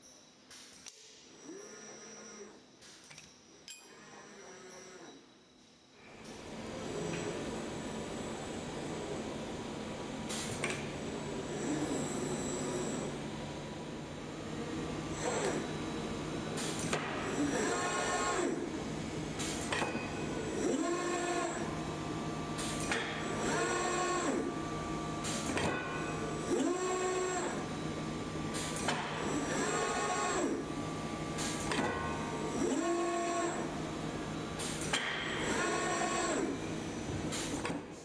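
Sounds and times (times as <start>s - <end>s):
robot arm servos whining: 0.8s - 5.8s, 15.1s - 15.8s, 16.8s - 18.6s, 20.4s - 21.7s, 32.5s - 33.7s, 35.3s - 36.5s.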